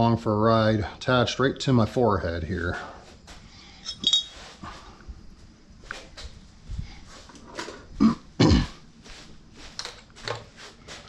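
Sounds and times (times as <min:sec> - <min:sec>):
man coughing: 0:08.0 - 0:08.8.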